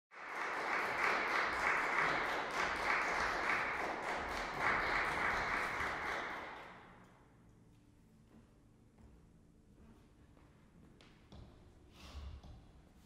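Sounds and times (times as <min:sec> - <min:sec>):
audience applause in a hall: 0:00.1 - 0:06.9.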